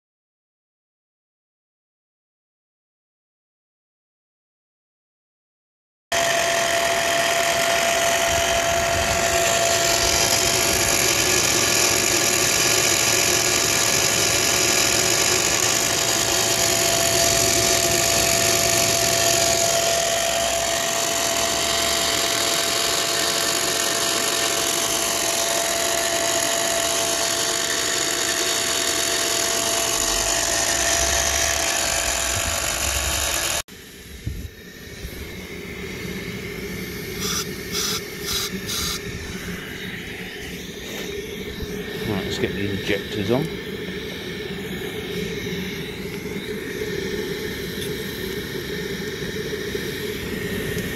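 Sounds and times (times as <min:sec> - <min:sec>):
electric fan whining: 0:06.1 - 0:50.9.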